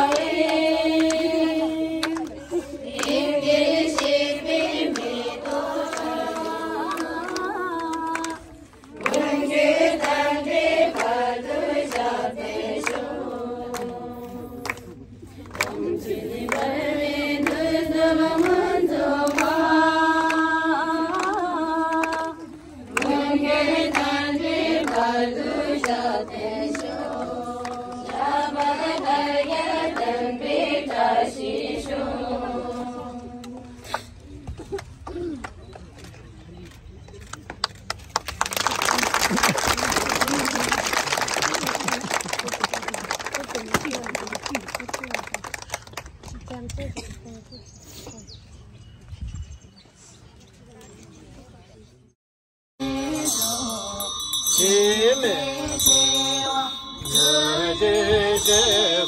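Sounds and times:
group singing slow chant: 0.0 - 15.0, 15.6 - 33.8, 52.8 - 59.0.

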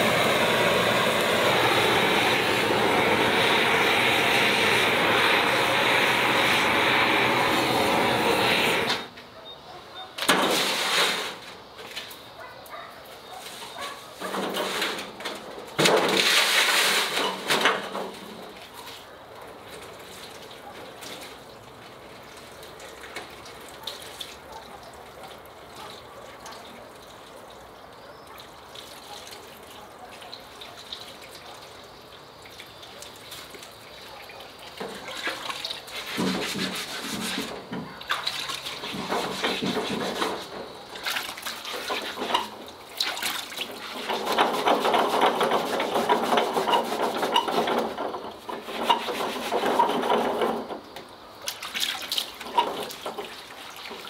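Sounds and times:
water pouring from kettle: 34.8 - 50.6, 51.5 - 54.0
brush rubbing wet skin: 35.0 - 37.6.

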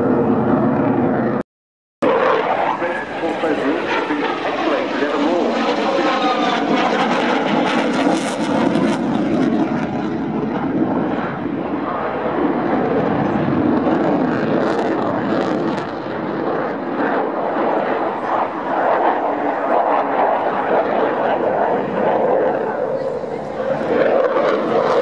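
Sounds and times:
jet engine roaring: 0.0 - 1.4, 2.0 - 25.0.

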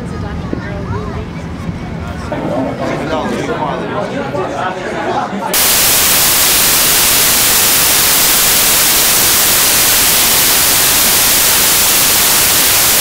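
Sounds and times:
loud static hiss: 5.6 - 13.0.

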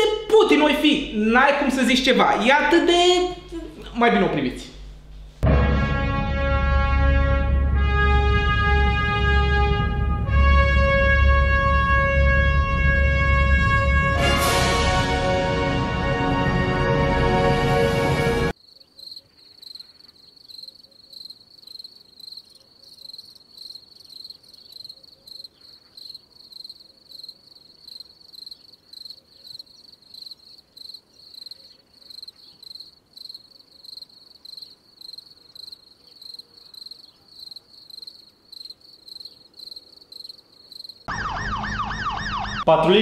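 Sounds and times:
cricket chirping: 18.5 - 41.1
wailing siren-like sound: 41.1 - 42.8.

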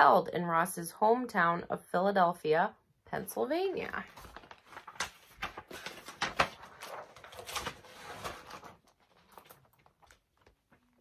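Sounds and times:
paper rustling: 3.8 - 11.0.

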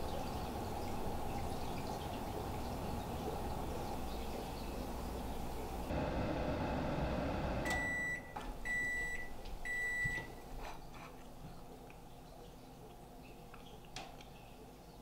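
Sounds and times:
microwave oven humming: 0.0 - 10.5
microwave timer beeping: 7.6 - 10.4.

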